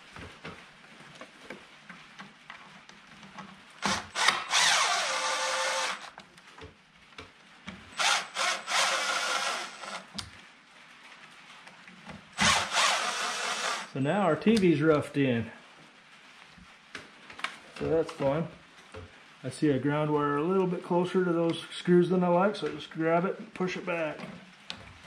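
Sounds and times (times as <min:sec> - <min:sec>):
impact driver running: 0:03.8 - 0:06.1, 0:12.4 - 0:13.9.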